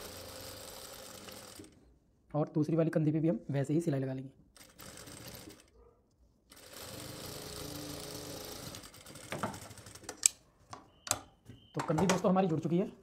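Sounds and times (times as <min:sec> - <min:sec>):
sewing machine running: 0:00.0 - 0:01.8, 0:04.6 - 0:05.7, 0:06.5 - 0:10.0.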